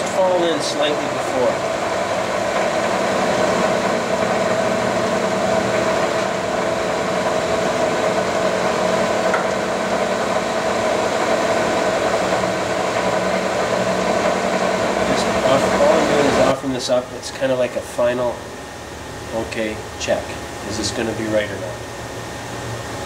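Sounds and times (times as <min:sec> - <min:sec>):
metal lathe humming and whining: 0:00.0 - 0:23.0.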